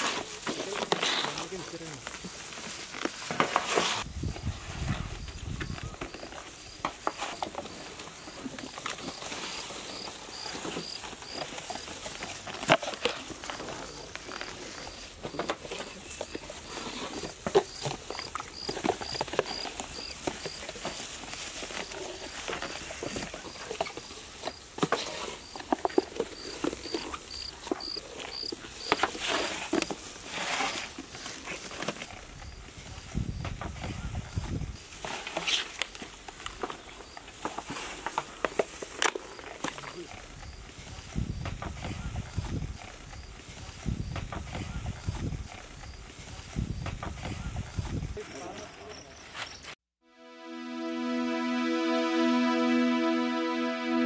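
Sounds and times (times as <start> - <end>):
insect chirping: 4.3 - 12.4, 15.9 - 21.0, 26.4 - 29.0.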